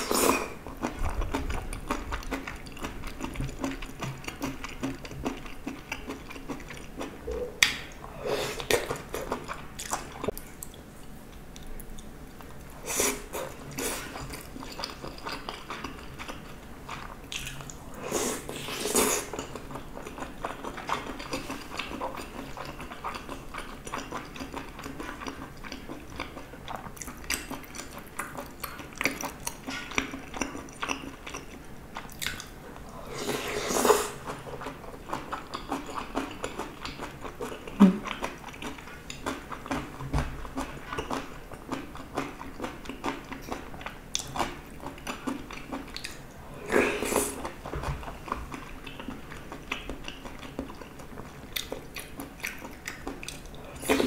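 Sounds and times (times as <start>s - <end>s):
person chewing food: 0.0s - 54.0s
wet mouth clicks: 7.2s - 8.0s.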